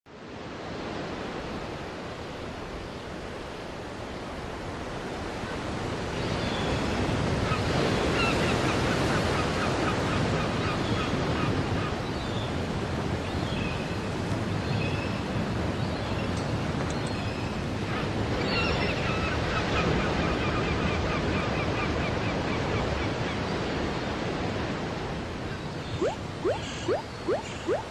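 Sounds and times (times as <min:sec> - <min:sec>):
ocean surf washing onto beach: 0:23.8 - 0:27.9
short high chirps: 0:26.0 - 0:27.9.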